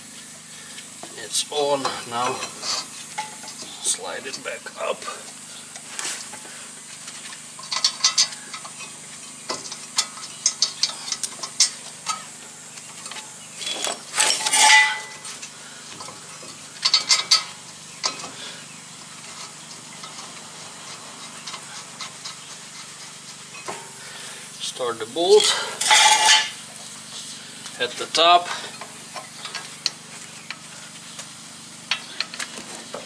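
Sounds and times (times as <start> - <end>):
metal scrape: 2.1 - 3.8, 13.6 - 15.4, 25.3 - 26.6.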